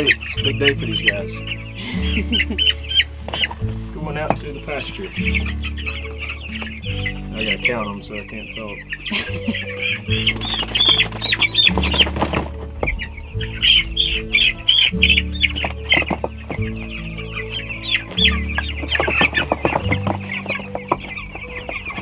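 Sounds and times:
background music low chords: 0.0s - 22.0s
chicks cheeping: 0.0s - 22.0s
knocks and scratching: 9.3s - 22.0s.

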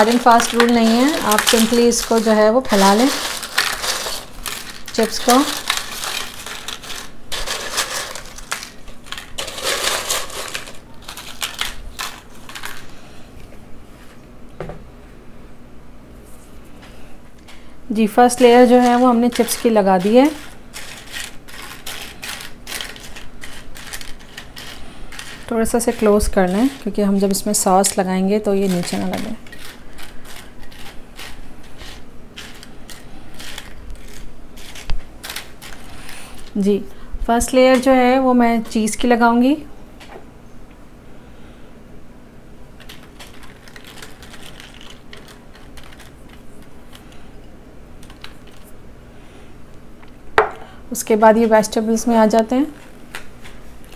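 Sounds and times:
tortilla chips crunching: 0.0s - 13.0s, 18.4s - 26.9s, 28.6s - 36.6s, 42.8s - 47.3s.

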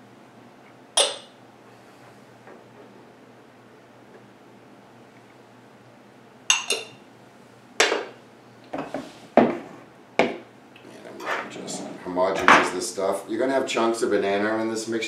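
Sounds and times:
dishes and utensils clinking: 1.0s - 1.4s, 6.5s - 7.0s.

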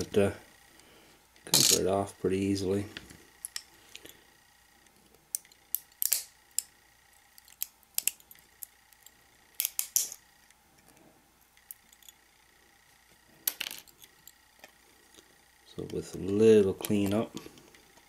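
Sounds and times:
pliers clicking and snapping: 5.4s - 6.7s.

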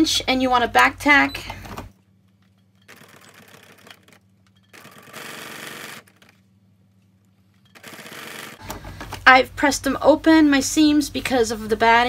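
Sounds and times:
sewing machine stitching: 2.9s - 6.4s, 7.7s - 8.8s.

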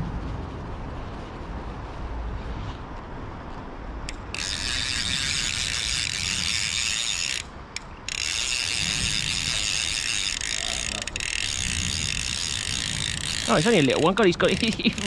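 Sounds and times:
fishing reel ratchet clicking: 4.1s - 15.0s.

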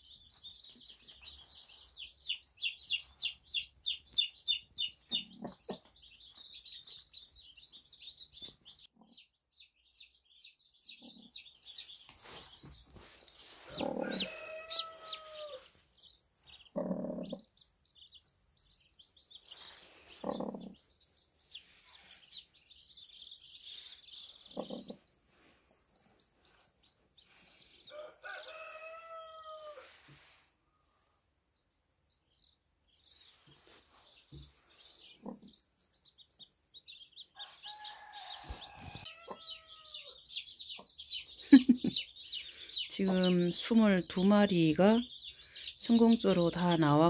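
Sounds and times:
chicks peeping: 0.0s - 29.7s, 31.6s - 47.0s
drawn-out chicken calls: 11.1s - 17.6s, 19.4s - 30.1s, 37.0s - 44.0s.

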